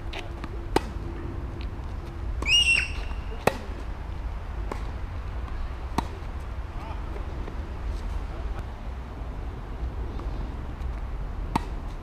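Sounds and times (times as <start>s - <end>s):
tennis racket hitting ball: 0.1s - 1.0s, 3.0s - 3.8s, 5.9s - 6.3s.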